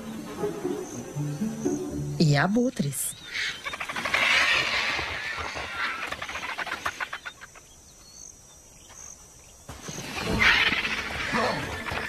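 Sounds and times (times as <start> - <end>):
vultures hissing: 3.2 - 7.6, 9.8 - 12.0.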